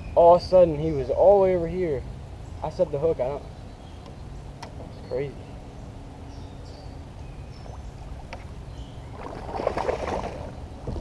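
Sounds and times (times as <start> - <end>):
fish splashing at surface: 9.2 - 10.6.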